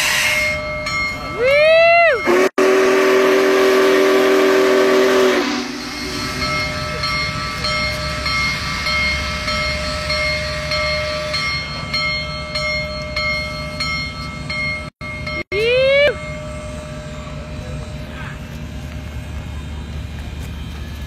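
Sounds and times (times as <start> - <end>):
steam locomotive whistle: 0.0 - 0.6, 1.5 - 6.5
locomotive bell ringing: 0.0 - 3.9, 4.7 - 21.0
locomotive rumbling past: 0.0 - 21.0.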